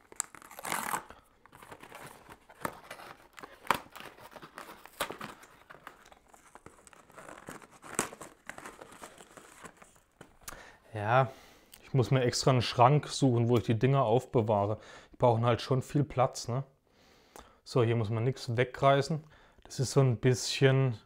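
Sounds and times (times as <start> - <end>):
packaging crinkling and rustling: 0.0 - 10.5.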